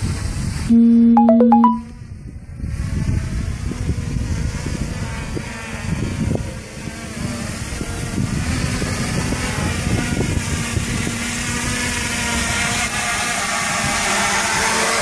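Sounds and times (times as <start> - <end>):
quadcopter motors buzzing: 2.2 - 15.0.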